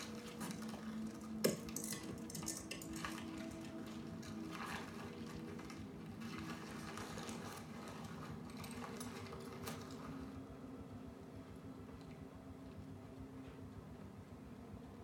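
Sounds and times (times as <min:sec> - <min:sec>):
faint paper rustling: 0:02.8 - 0:10.5.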